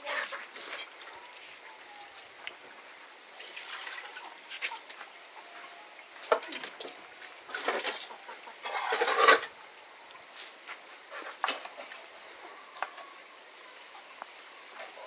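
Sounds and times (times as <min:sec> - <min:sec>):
water rushing from tap: 0:03.4 - 0:04.2
metal pots clinking: 0:06.3 - 0:09.6.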